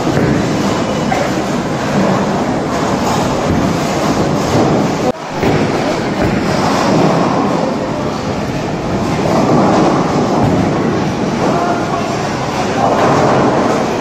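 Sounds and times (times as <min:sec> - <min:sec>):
bowling balls rolling: 0:00.0 - 0:14.0.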